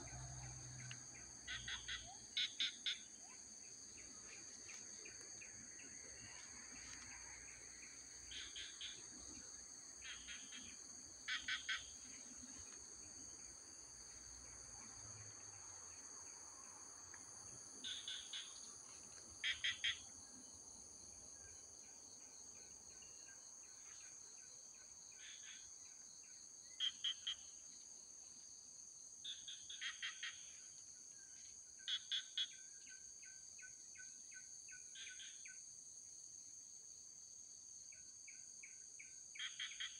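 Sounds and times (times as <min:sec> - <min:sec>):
insects droning: 0:00.0 - 0:39.9
bird calls: 0:01.5 - 0:03.4.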